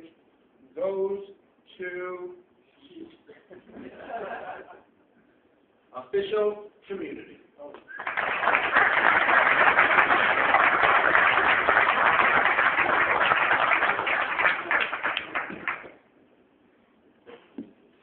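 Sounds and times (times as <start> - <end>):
audience applauding: 7.9 - 16.0.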